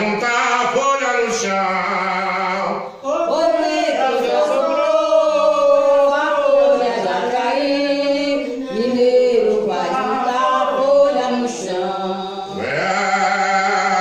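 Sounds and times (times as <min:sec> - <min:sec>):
men chanting a hymn: 0:00.0 - 0:14.0.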